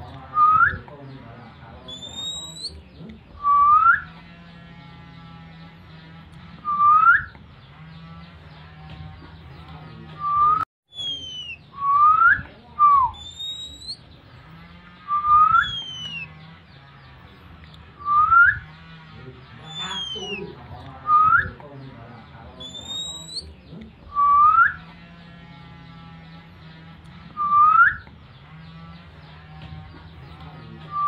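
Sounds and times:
sliding bird whistles: 1.9 - 2.7, 3.4 - 4.1, 6.6 - 7.4, 10.2 - 14.0, 15.1 - 16.3, 18.0 - 18.7, 19.6 - 20.4, 22.6 - 23.4, 24.1 - 24.9, 27.4 - 28.1.

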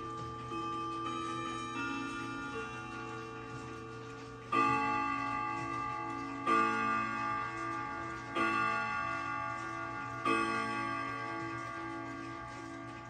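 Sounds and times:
grandfather clock striking: 0.0 - 13.0.

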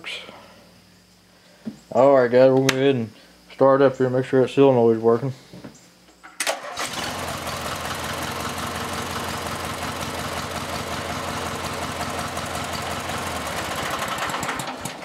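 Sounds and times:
mower engine starting and running: 6.4 - 15.0.

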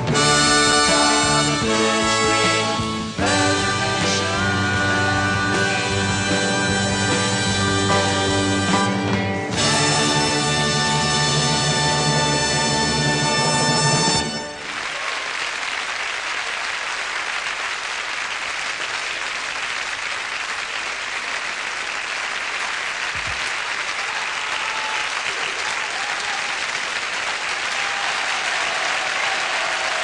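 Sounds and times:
audience applauding: 9.1 - 30.0.

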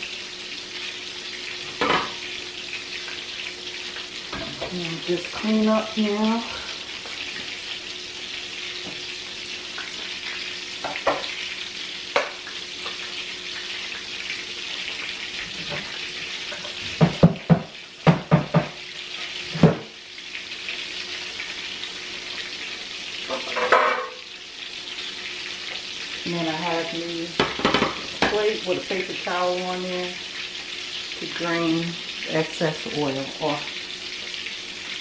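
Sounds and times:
fish frying in oil: 0.0 - 35.0.

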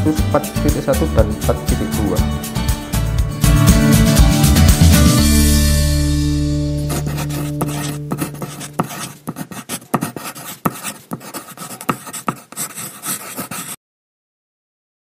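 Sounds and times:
pen scratching on paper: 6.9 - 13.8.

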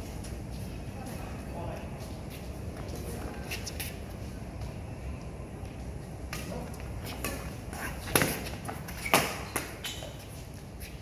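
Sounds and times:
racket hitting shuttlecock: 6.3 - 10.1.

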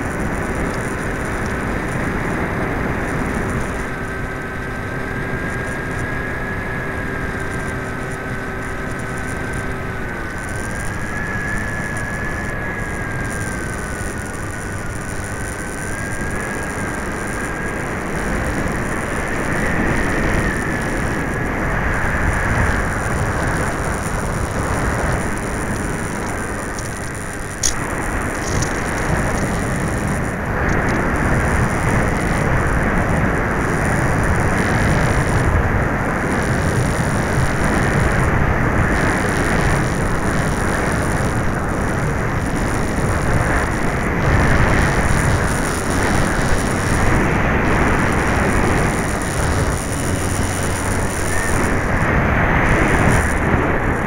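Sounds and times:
electric motor and propeller: 0.0 - 54.0
faint whine: 0.0 - 54.0
wind buffeting microphone: 0.0 - 54.0
sharp click: 26.2 - 28.8.

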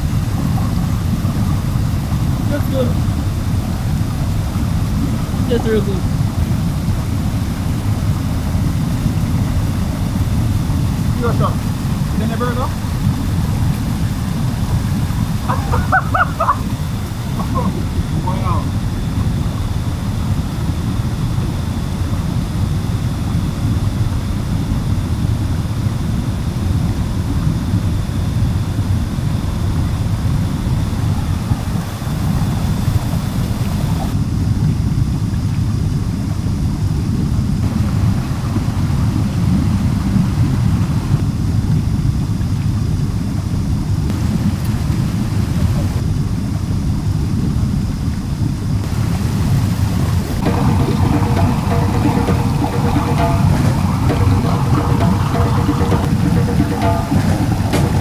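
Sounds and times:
river and waterfall roaring: 0.0 - 20.9, 29.4 - 34.2, 37.6 - 41.2, 44.1 - 46.0, 48.8 - 58.0.

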